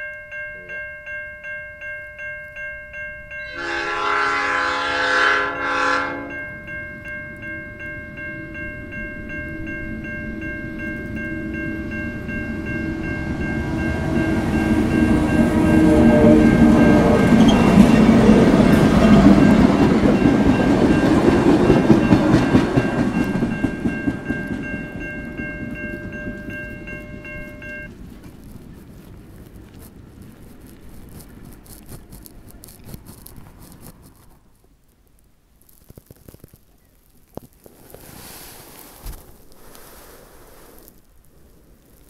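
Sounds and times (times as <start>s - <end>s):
crossing bell ringing: 0.0s - 28.0s
diesel locomotive engine: 3.2s - 31.4s
train wheels on rails: 3.4s - 34.4s.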